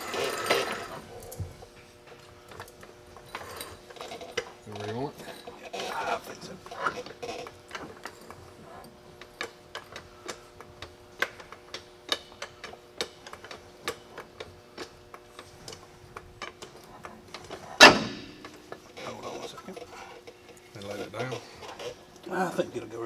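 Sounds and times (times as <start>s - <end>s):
loud metal clunk: 17.7s - 18.6s.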